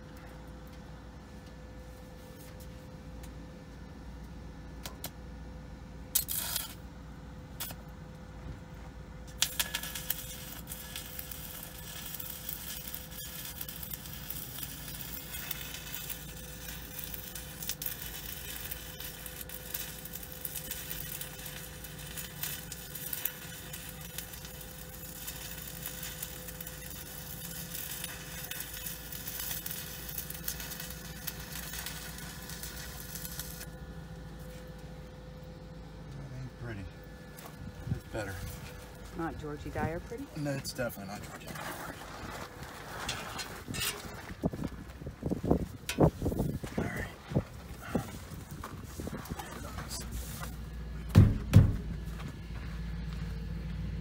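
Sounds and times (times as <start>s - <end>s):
welding arc burning: 6.1s - 6.9s, 7.5s - 8.0s, 9.2s - 35.2s, 37.8s - 52.2s.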